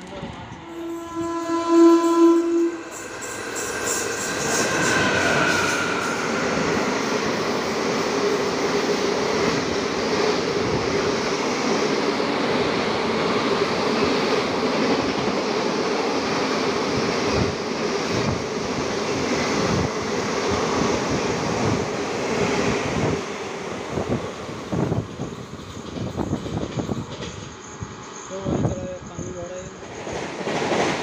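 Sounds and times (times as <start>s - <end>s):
train wheels roaring on rails: 0.0s - 31.0s.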